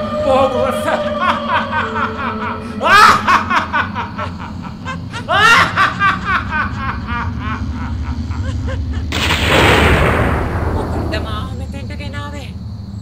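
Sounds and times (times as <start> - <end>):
woman cackling laugh: 0.9 - 9.2.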